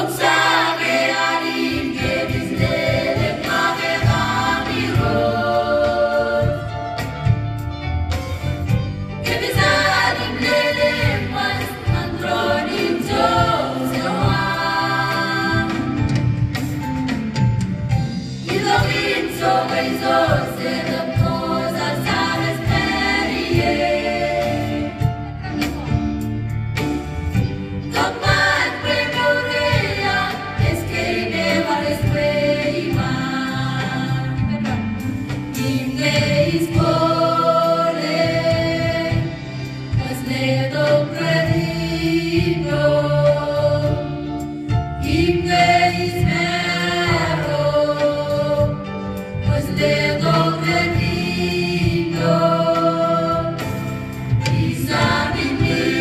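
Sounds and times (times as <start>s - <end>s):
choir singing a hymn: 0.0s - 7.8s, 8.4s - 17.2s, 17.9s - 25.8s, 27.3s - 56.0s
guitar: 5.9s - 12.4s, 14.2s - 41.5s.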